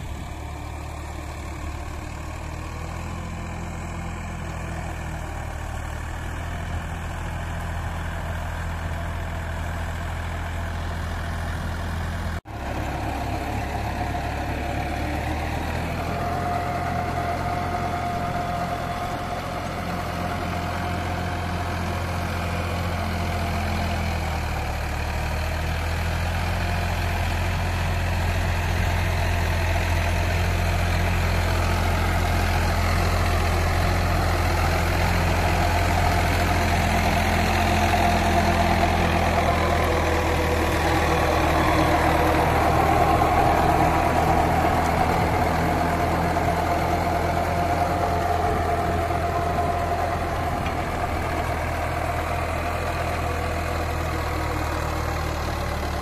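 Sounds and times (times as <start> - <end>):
diesel tractor engine under load: 0.0 - 56.0.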